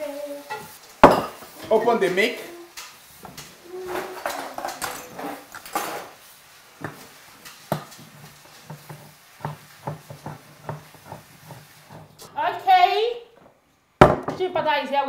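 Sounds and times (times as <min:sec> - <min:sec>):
kitchenware clinking: 0:00.4 - 0:06.2, 0:06.8 - 0:12.3.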